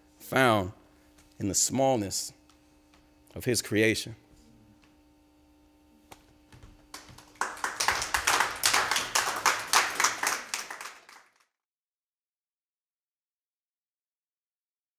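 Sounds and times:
people clapping: 0:06.6 - 0:11.6.

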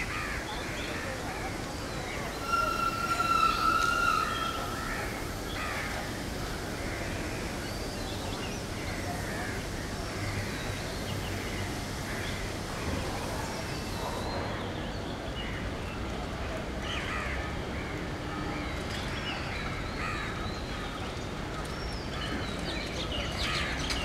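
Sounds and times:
birds calling: 0:00.0 - 0:09.2
outdoor background noise: 0:00.0 - 0:24.0
crows cawing: 0:02.4 - 0:06.0.

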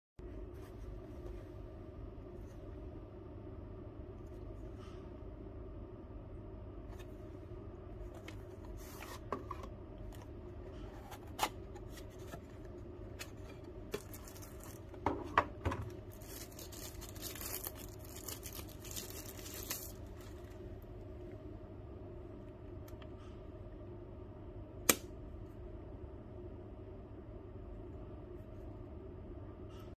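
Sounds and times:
tissue paper crinkling: 0:13.4 - 0:15.0, 0:16.0 - 0:20.7.

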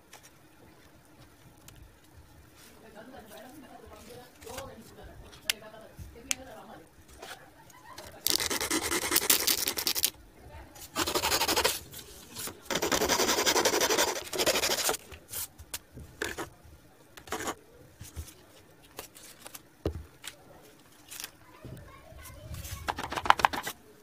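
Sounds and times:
hacksaw rasping on cardboard: 0:08.3 - 0:10.1, 0:11.0 - 0:11.8, 0:12.7 - 0:15.0.

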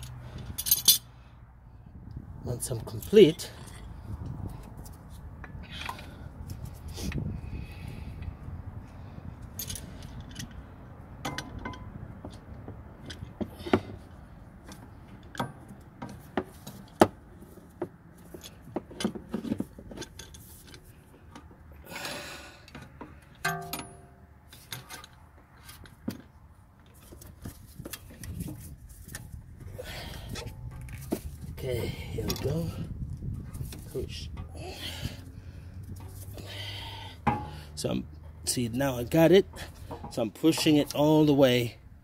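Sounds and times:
metal clamp clicks and clinks: 0:00.0 - 0:01.1, 0:09.4 - 0:10.6
ringing metal clink: 0:23.4 - 0:24.2.

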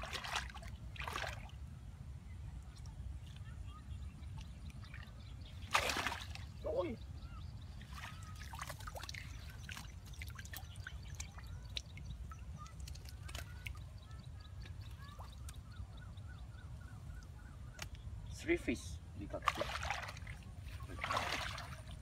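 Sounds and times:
water dripping and trickling: 0:08.0 - 0:15.8.

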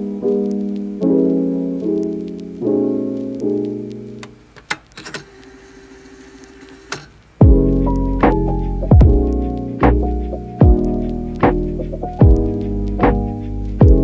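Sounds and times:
piano chords ringing: 0:00.0 - 0:04.6, 0:07.4 - 0:14.0.

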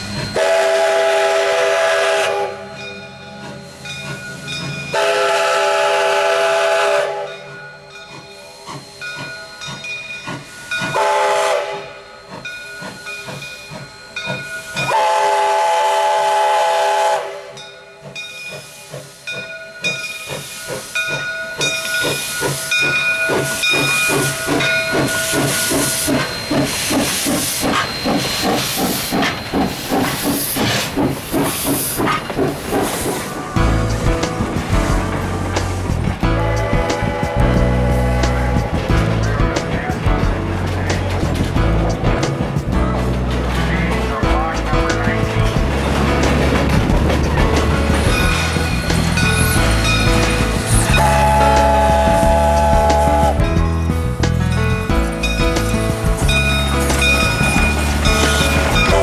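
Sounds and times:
steam locomotive chuffing: 0:00.0 - 0:59.0
steam whistle blasts: 0:00.1 - 0:02.9, 0:04.9 - 0:07.6, 0:10.9 - 0:12.1, 0:14.7 - 0:17.6, 0:50.9 - 0:53.4
hissing steam: 0:03.3 - 0:40.1.

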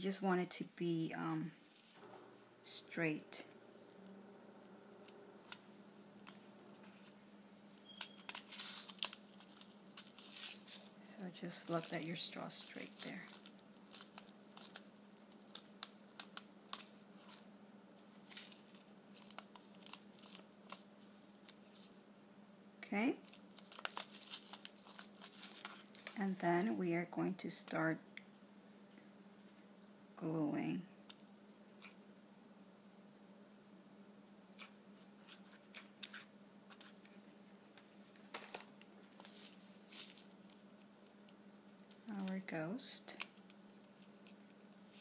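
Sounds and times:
faint steady hum: 0:00.0 - 0:45.0
paper rustling and crinkling: 0:07.8 - 0:22.0, 0:23.2 - 0:26.2, 0:37.8 - 0:41.2.

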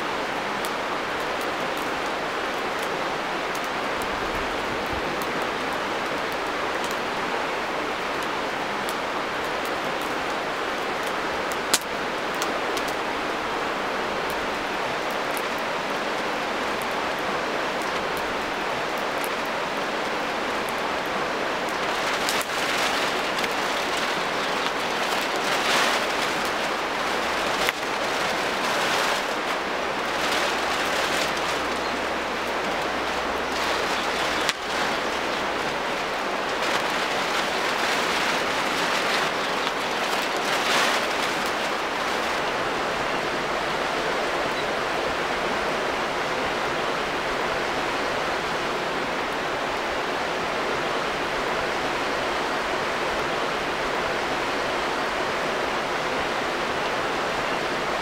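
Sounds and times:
campfire crackling and popping: 0:00.0 - 0:07.1, 0:08.0 - 0:13.0, 0:14.2 - 0:42.5
river rapids rushing: 0:00.0 - 0:58.0
footsteps on dry leaves: 0:21.8 - 0:32.4, 0:33.0 - 0:42.3.

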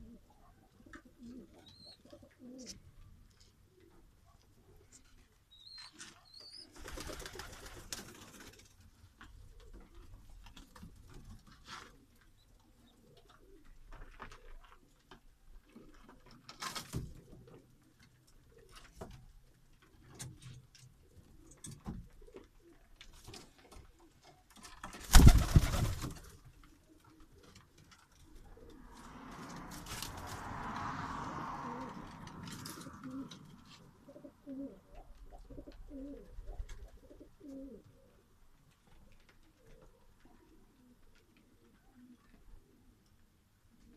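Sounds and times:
pigeons cooing: 0:00.0 - 0:02.8, 0:25.1 - 0:29.6, 0:31.6 - 0:38.3.

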